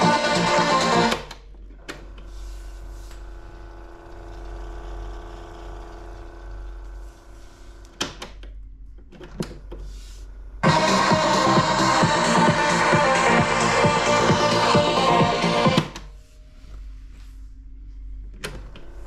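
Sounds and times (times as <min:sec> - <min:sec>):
tape music: 0:00.0 - 0:01.3, 0:10.6 - 0:16.1
cassette mechanism whirring: 0:00.0 - 0:02.1.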